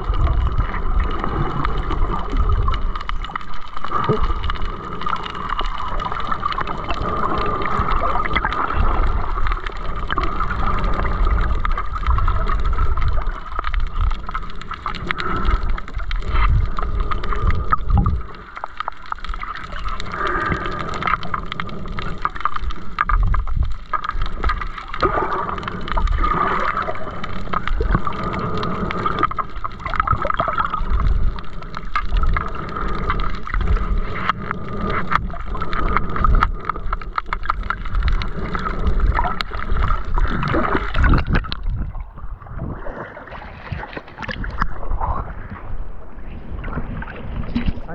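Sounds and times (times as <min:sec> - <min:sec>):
muffled underwater rushing water: 0:00.0 - 0:47.9.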